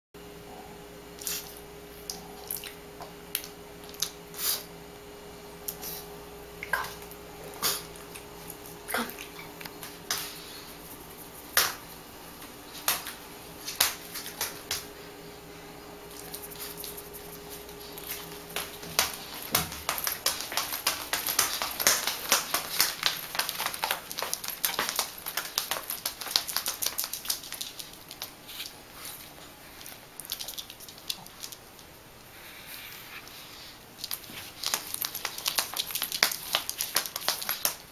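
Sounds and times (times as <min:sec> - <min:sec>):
dog shoes tapping on hard floor: 0:17.6 - 0:28.3, 0:34.1 - 0:37.9.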